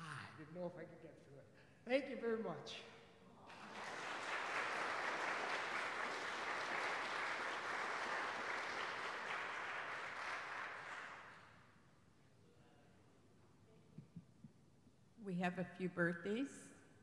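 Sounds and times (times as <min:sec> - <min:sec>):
crowd applauding: 0:03.5 - 0:11.6.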